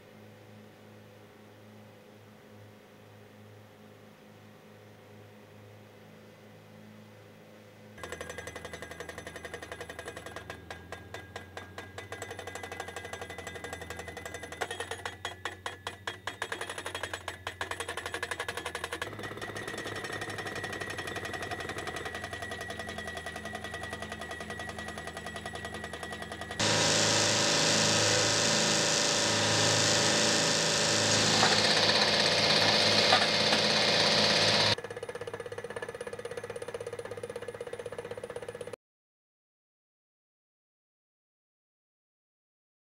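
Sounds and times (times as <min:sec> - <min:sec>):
pile driver hammering: 0:08.0 - 0:34.8.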